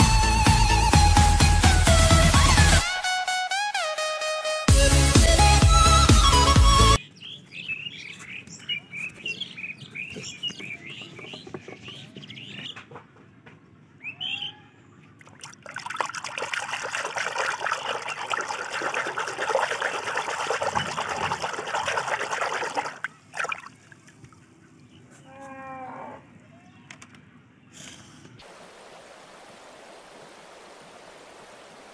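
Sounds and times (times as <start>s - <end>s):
small birds chirping: 7.0s - 13.2s
water pouring into plastic tub: 15.2s - 23.7s.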